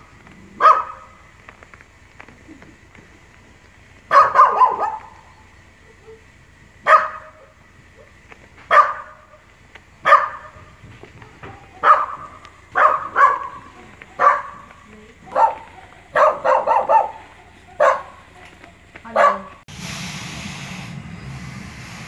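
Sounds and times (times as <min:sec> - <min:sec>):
small dog barking: 0:00.4 - 0:01.4, 0:04.0 - 0:19.6.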